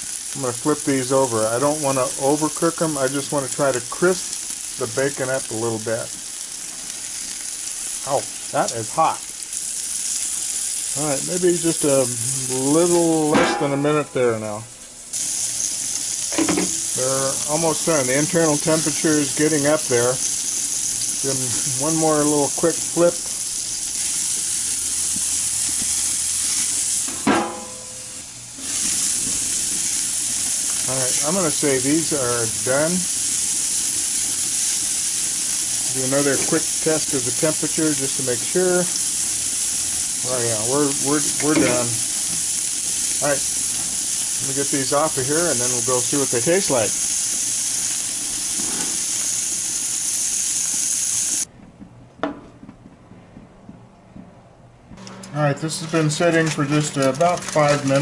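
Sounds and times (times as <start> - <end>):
meat sizzling on a grill: 0.0 - 51.5, 55.8 - 58.0
grill lid shutting: 12.8 - 14.2, 16.3 - 20.0, 26.5 - 30.0, 40.6 - 42.4, 55.0 - 58.0.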